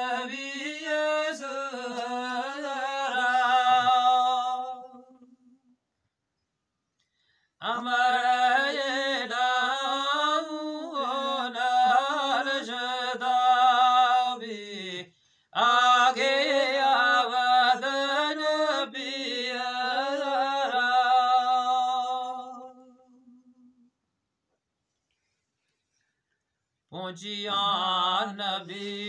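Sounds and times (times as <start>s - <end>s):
man chanting: 26.9s - 29.0s.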